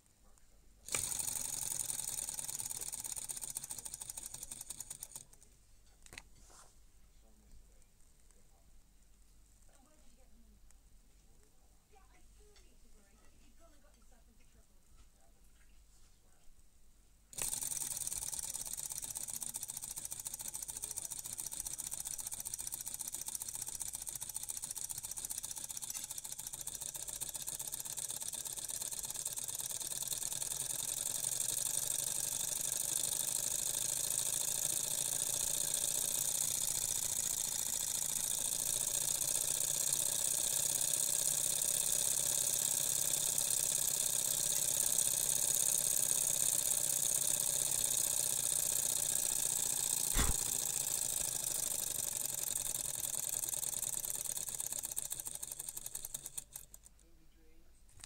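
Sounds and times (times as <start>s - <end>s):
stirling engine whirring rattle: 0.9s - 5.2s, 17.4s - 56.8s.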